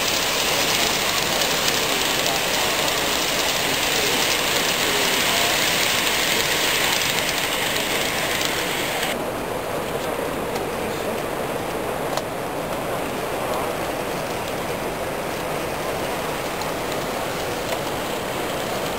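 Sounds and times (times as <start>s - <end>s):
hall noise hiss: 0.0s - 11.2s
model train running on track: 0.0s - 18.9s.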